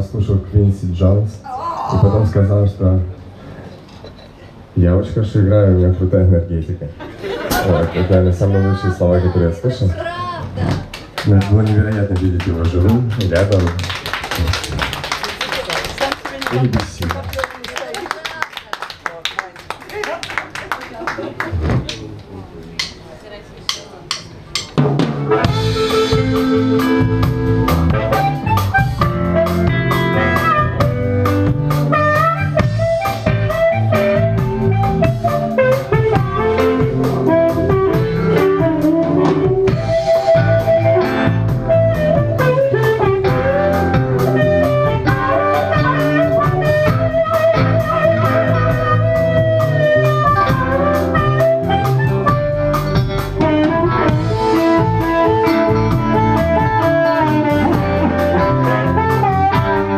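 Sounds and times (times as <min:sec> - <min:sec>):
live blues band playing: 0:23.6 - 0:59.9
amplified harmonica: 0:25.3 - 0:59.9.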